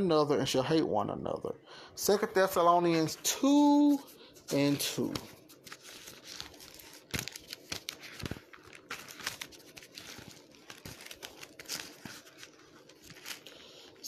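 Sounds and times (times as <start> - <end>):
thin pages rustling: 3.9 - 14.0.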